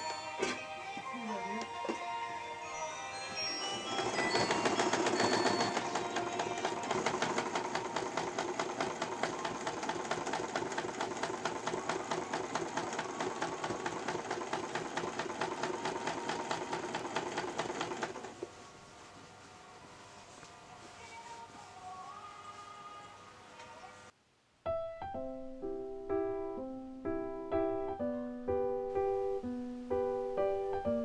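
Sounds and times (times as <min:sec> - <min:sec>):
sewing machine stitching: 0:03.6 - 0:18.5.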